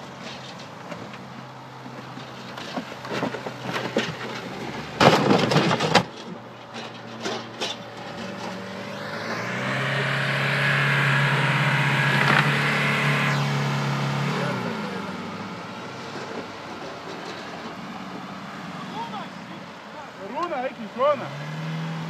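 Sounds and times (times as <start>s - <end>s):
loud clattering crash: 2.6s - 8.7s
car engine revving: 7.2s - 22.0s.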